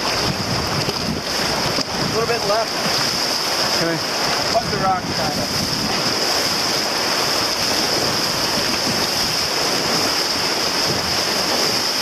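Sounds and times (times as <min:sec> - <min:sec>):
river rapids rushing: 0:00.0 - 0:12.0.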